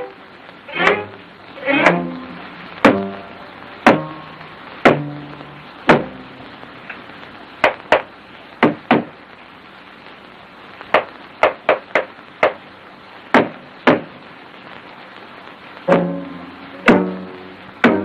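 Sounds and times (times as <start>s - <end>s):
film soundtrack hiss: 0.0s - 18.0s
sharp wooden knocks: 0.8s - 1.0s, 2.8s - 3.1s, 3.8s - 4.2s, 4.8s - 5.2s, 5.9s - 6.2s, 7.6s - 9.2s, 10.9s - 12.6s, 13.3s - 14.2s.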